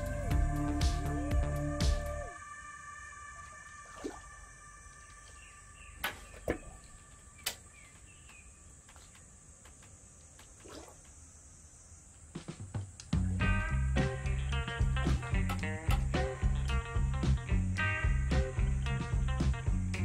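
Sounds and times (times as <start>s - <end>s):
faint high tone: 2.2s - 7.3s
small splashes: 3.8s - 4.5s, 6.0s - 7.6s, 10.3s - 11.2s.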